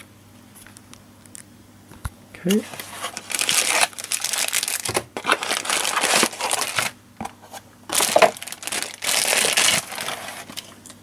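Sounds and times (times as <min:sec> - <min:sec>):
plastic bags crinkling: 0:02.7 - 0:07.0, 0:07.9 - 0:11.0.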